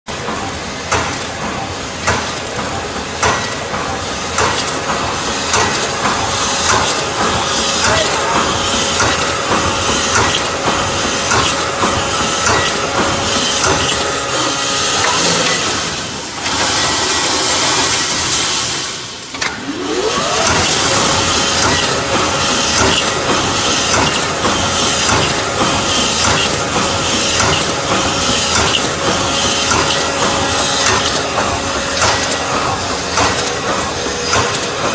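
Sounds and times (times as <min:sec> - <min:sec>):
welding machine running: 0:00.1 - 0:34.9
machine whine: 0:02.6 - 0:34.9
irregular clicks and knocks: 0:22.7 - 0:34.9.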